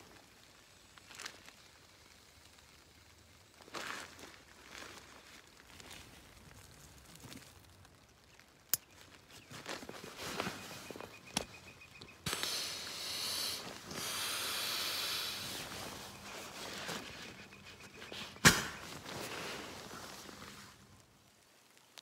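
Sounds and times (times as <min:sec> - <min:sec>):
air hissing out of valve: 0:12.2 - 0:16.2
fabric rustling: 0:15.5 - 0:20.8.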